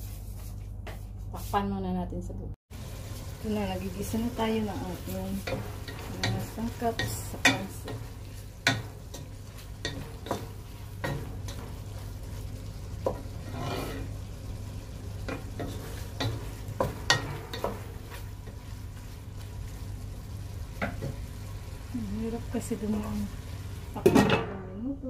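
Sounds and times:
food sizzling in oil: 2.7s - 24.3s
wooden spatula scraping a pot: 4.8s - 14.3s, 15.2s - 19.8s.

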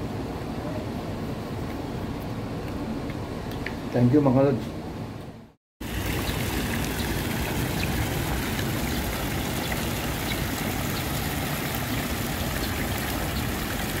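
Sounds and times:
water flowing: 5.8s - 14.0s.

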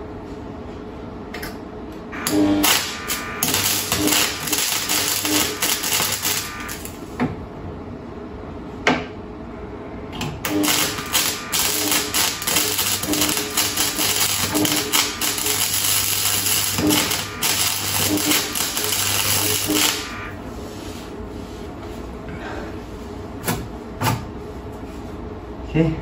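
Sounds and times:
steady hum: 0.0s - 26.0s
welding arc crackling: 2.2s - 7.2s, 10.4s - 20.4s.

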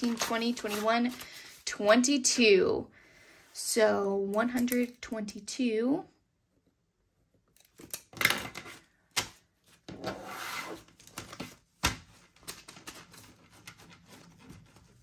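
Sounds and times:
paper bills rustling: 0.0s - 2.0s.

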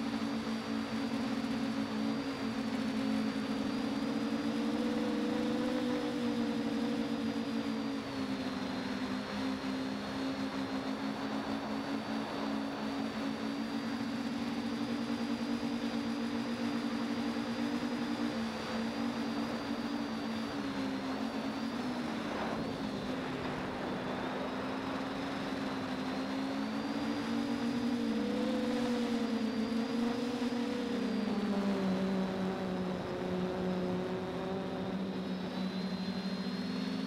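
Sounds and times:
drone propellers humming: 0.0s - 37.0s.

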